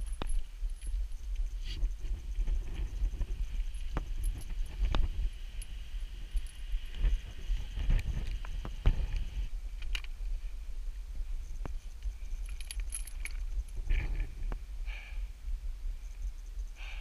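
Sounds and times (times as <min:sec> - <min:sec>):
chains clinking against rock: 0:00.0 - 0:01.4, 0:02.5 - 0:07.2, 0:12.1 - 0:14.3
constant low rumble: 0:00.0 - 0:17.0.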